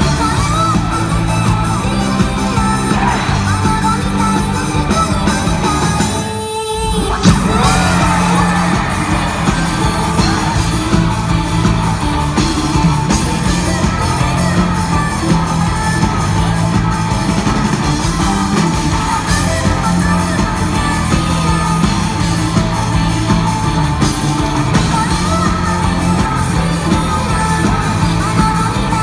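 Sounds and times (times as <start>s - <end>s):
synthesized singing voices: 0.0s - 17.6s
crowd yelling and cheering: 0.0s - 29.0s
live pop-rock band: 0.0s - 29.0s.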